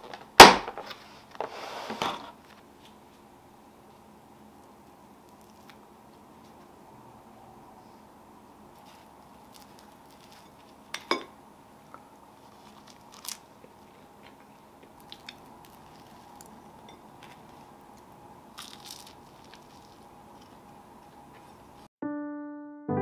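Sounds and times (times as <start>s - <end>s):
faint steady hum: 0.0s - 21.9s
kitchen scrapes: 0.8s - 2.4s.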